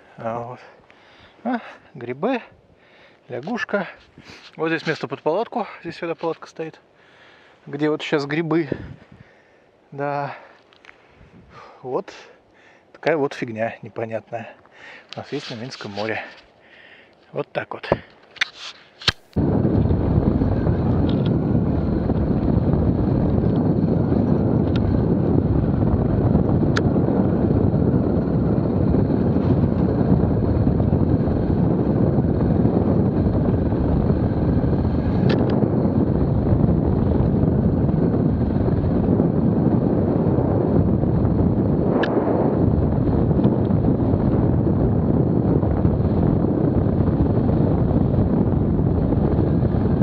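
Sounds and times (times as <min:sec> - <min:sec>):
wind rushing over microphone: 0:07.6 - 0:10.5, 0:11.1 - 0:12.1, 0:19.1 - 0:50.0.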